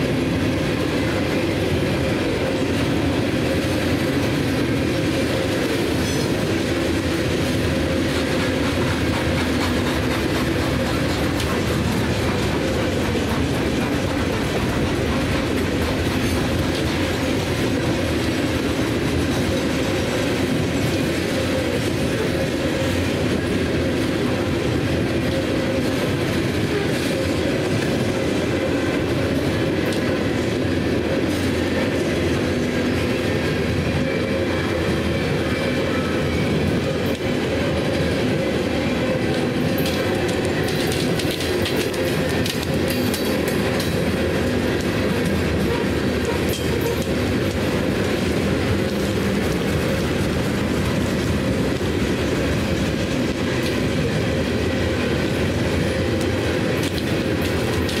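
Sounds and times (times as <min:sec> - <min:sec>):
train wheels clattering on rails: 0:00.0 - 0:58.0.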